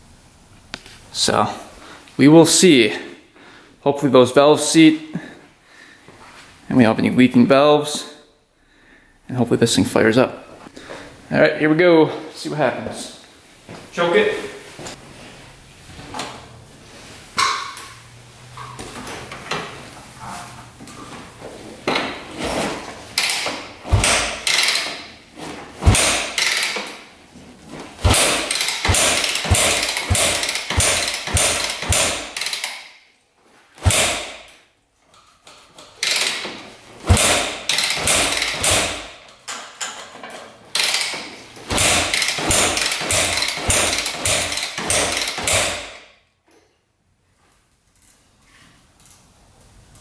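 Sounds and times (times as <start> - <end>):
engine turning over: 28.0 - 32.7, 40.8 - 45.7
motorcycle kick-start knocks: 28.0 - 32.8, 40.8 - 46.0.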